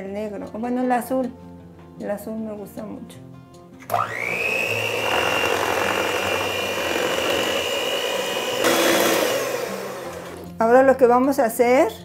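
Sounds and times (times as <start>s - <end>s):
electric hand mixer whine: 3.9s - 10.5s.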